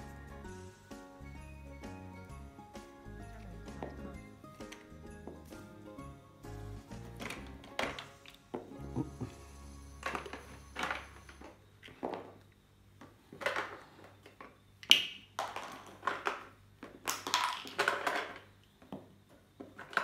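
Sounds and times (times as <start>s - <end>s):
plastic toy pieces rattling: 17.1s - 18.5s.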